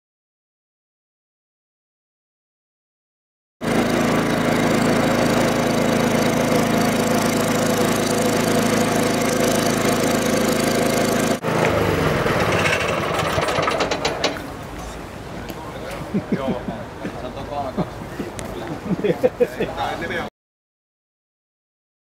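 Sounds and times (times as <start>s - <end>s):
small petrol engine running: 3.6s - 14.4s.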